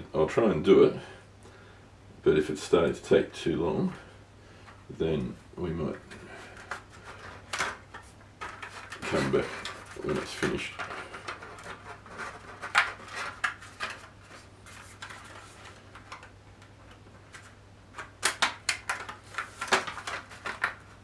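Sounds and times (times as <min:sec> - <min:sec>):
plastic parts clicking together: 0:06.1 - 0:14.1, 0:15.0 - 0:21.0.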